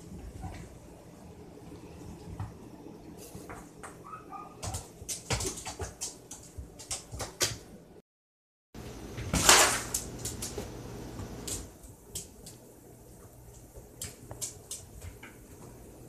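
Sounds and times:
kitten claws tapping on tiled floor: 0:04.6 - 0:07.6, 0:11.5 - 0:12.6, 0:13.5 - 0:15.4.

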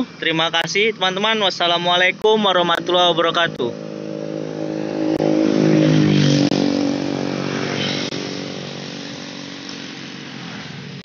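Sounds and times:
motorcycle engine passing by: 0:03.0 - 0:11.0.

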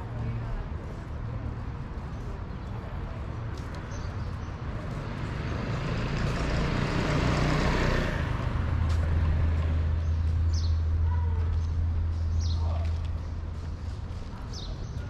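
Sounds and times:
vehicle engine hum: 0:00.0 - 0:15.0.

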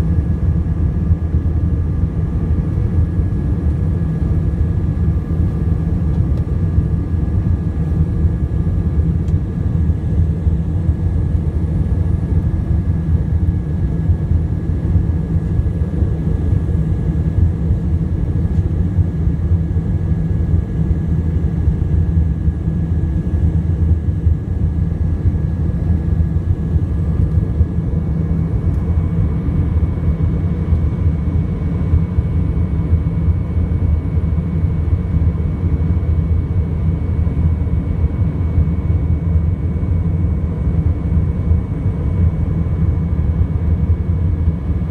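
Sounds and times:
airplane cabin engine rumble: 0:00.0 - 0:44.9.

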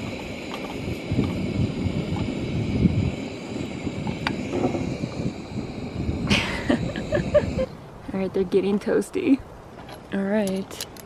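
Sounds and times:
camp stove burner running: 0:00.0 - 0:08.3.

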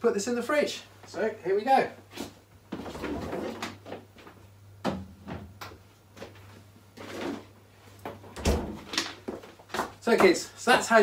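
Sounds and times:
fridge door opening and shutting: 0:08.2 - 0:09.2.

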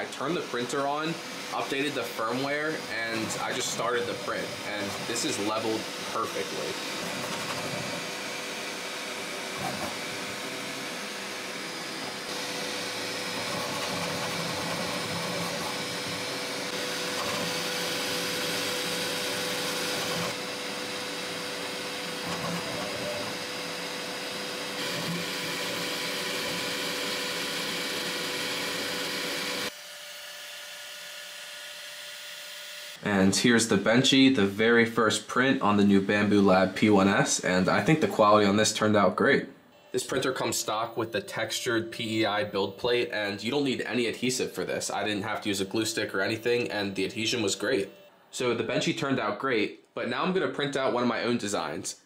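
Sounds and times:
printer fans and motors whirring: 0:00.0 - 0:32.7.

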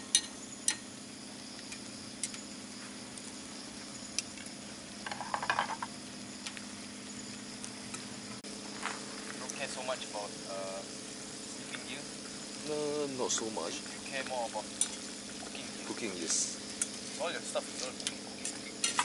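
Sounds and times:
food sizzling in a frying pan: 0:14.0 - 0:19.0.

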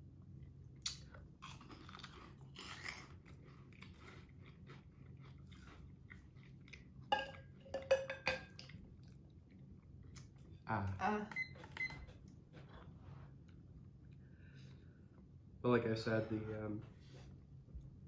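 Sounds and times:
chewing crunchy snacks: 0:00.8 - 0:07.0.

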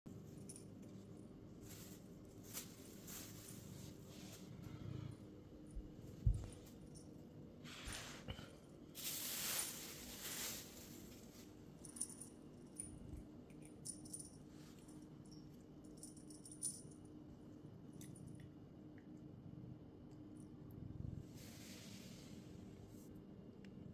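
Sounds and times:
small bell tinkling: 0:11.8 - 0:17.1.

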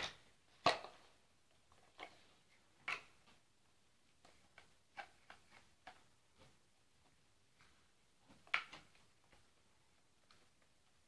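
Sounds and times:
plastic blocks clacking: 0:00.0 - 0:01.1.

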